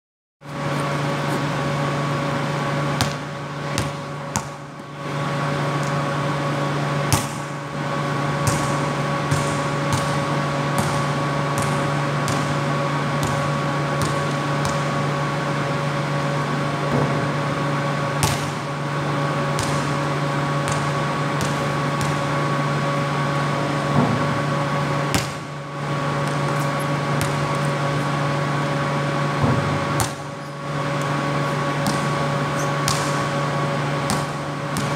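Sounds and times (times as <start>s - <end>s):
steady tonal hum: 0.4s - 34.9s
basketball bouncing on concrete: 3.0s - 4.8s, 7.1s - 7.5s, 8.4s - 15.0s, 18.2s - 18.7s, 19.6s - 22.3s, 25.1s - 25.5s, 26.2s - 27.9s, 29.4s - 34.9s.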